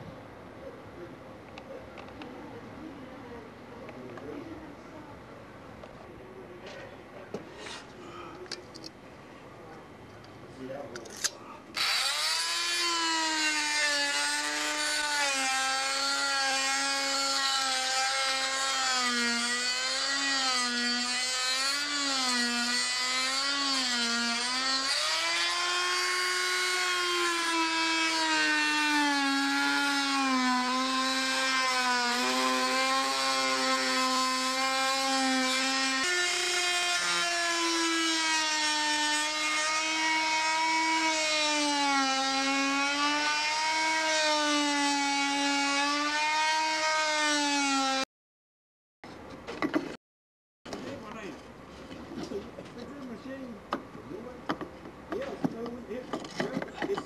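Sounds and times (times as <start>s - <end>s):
power tool motor whine: 11.8s - 48.1s.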